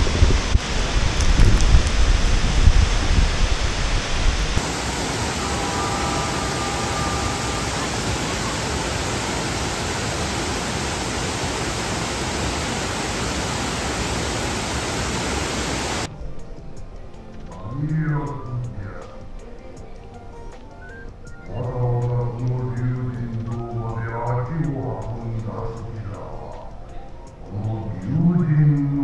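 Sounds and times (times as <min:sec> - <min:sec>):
waterfall rushing: 0:00.0 - 0:16.1
wind rumble on microphone: 0:00.0 - 0:20.4.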